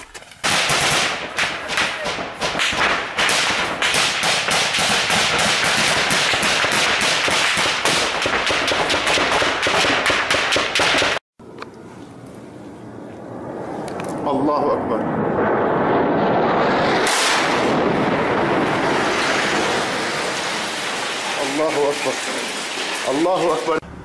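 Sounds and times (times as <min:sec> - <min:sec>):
rifle gunfire: 0:00.4 - 0:11.2.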